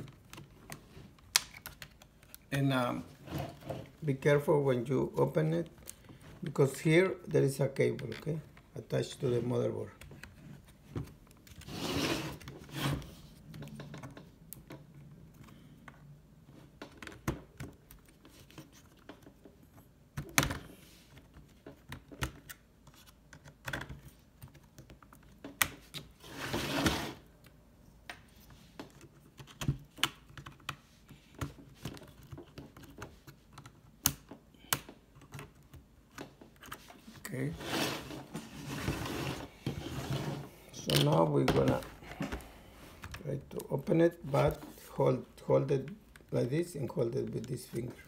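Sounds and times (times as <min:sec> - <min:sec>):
plastic tool scraping: 0:11.4 - 0:14.0, 0:36.6 - 0:43.3.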